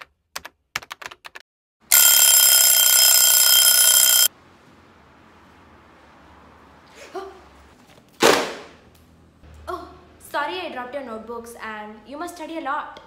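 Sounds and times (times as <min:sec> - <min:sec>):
alarm bell ringing: 0:01.9 - 0:04.3.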